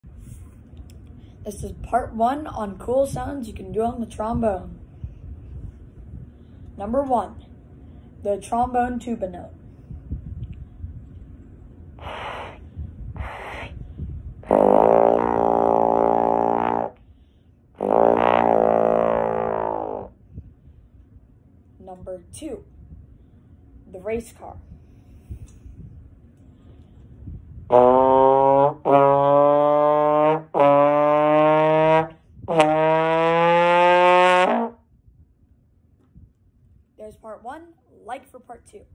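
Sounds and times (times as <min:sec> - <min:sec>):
rushes of air: 0:04.4 - 0:06.8, 0:09.6 - 0:21.6, 0:22.7 - 0:23.9, 0:24.5 - 0:28.5
trombone low sustained note: 0:14.4 - 0:20.2, 0:27.7 - 0:35.0.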